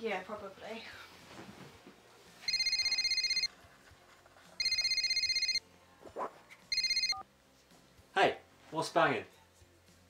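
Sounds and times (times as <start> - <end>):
telephone ringing electronic warble: 2.5 - 3.5, 4.6 - 5.6, 6.7 - 7.2.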